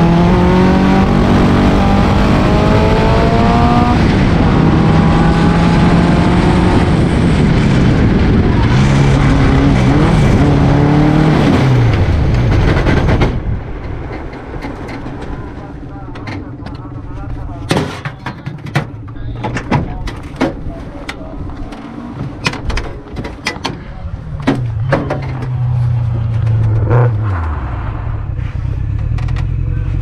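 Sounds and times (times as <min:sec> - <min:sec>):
racing car engine revving: 0:00.0 - 0:13.4, 0:24.3 - 0:30.0.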